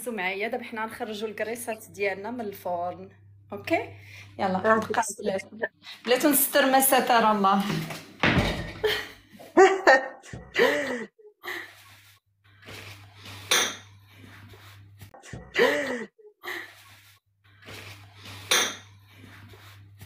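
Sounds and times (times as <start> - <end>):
low steady hum: 0.0 - 7.8
pots and dishes clattering: 18.4 - 18.9.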